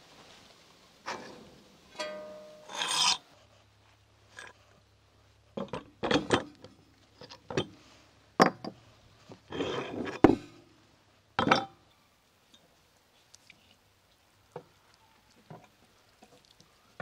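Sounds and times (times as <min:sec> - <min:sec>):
short metal rattle: 0:01.1 - 0:03.2.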